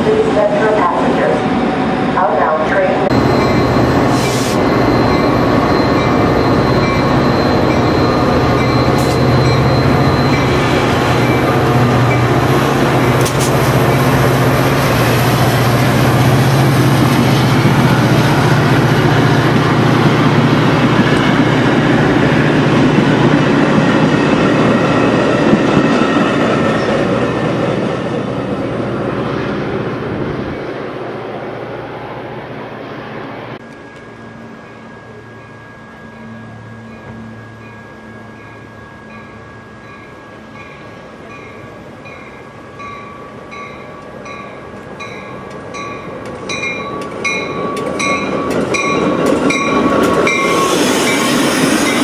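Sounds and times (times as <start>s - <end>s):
train wheels rumbling on rails: 0.0s - 31.0s, 39.8s - 52.0s
diesel locomotive engine droning: 0.0s - 52.0s
faint high wheel squeal: 3.2s - 11.5s.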